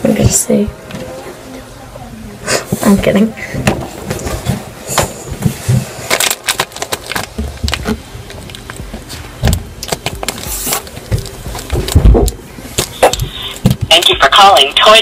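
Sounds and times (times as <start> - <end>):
handling noise: 3.6 - 14.0.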